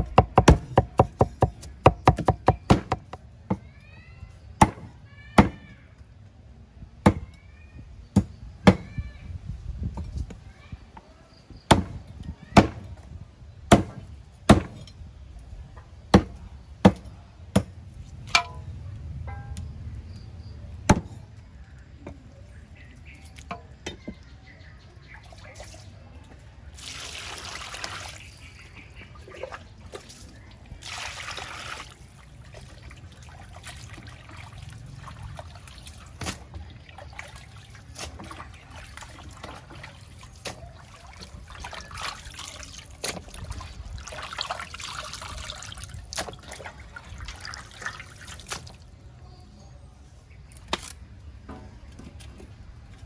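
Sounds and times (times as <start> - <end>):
cleaver chopping on wooden block: 0.0 - 3.2
water splashing in metal bowl: 26.7 - 48.8.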